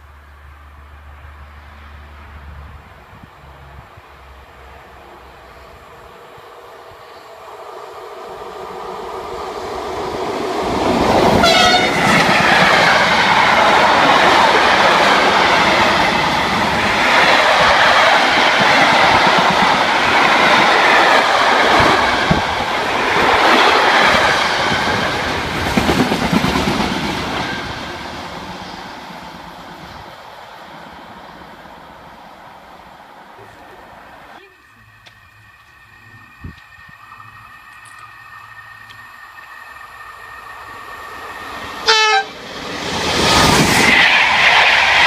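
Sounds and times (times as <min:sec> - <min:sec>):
freight train passing: 0:00.0 - 0:45.0
train horn blast: 0:11.3 - 0:12.2, 0:41.8 - 0:42.4
wheels on rails: 0:34.2 - 0:45.0.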